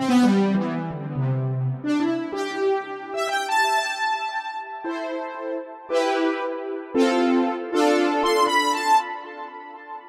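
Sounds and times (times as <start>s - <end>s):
synth brass notes and chords: 0.0s - 10.0s.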